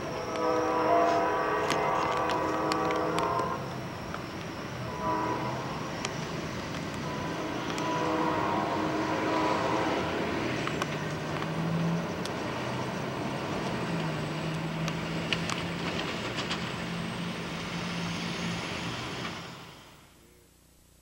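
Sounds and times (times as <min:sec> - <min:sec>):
train horn: 0:00.0 - 0:03.8, 0:04.5 - 0:10.8
train rumbling: 0:00.0 - 0:20.4
road vehicles passing: 0:05.6 - 0:20.1.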